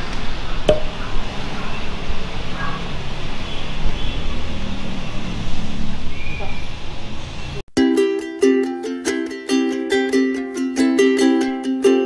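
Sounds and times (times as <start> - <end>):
street traffic rumble: 0.0 - 7.7.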